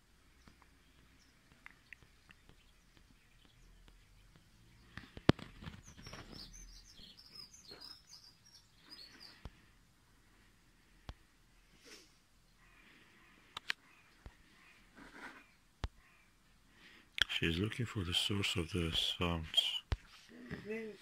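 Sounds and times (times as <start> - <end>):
songbird chirping: 0.0 - 21.0
sharp clicks: 13.5 - 13.8.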